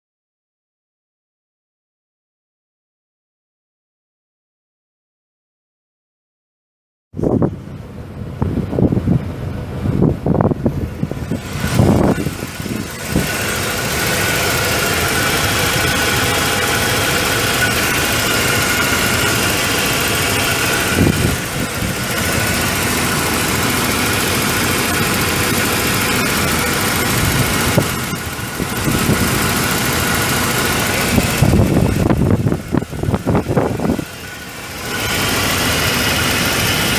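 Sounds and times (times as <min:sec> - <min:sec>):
engine idling: 0:07.5 - 0:36.9.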